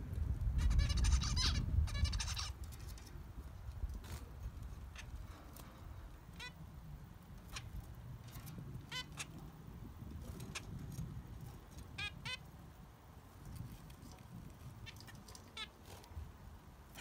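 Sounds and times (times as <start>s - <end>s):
finches giving nasal beeping calls: 0.6s - 2.6s, 8.4s - 9.4s, 11.9s - 12.4s.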